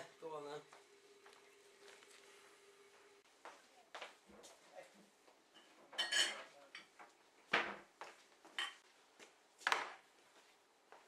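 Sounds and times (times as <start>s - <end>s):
china mugs and teaspoon clinking: 5.6s - 6.9s, 8.6s - 8.8s.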